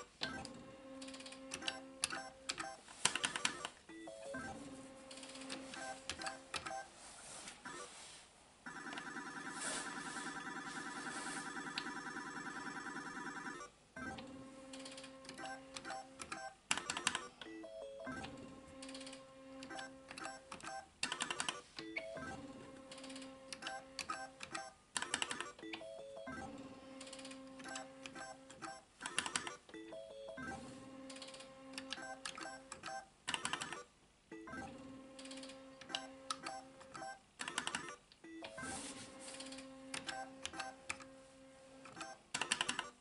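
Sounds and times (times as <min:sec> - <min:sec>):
rapid electronic ringing: 0:08.7 - 0:13.6.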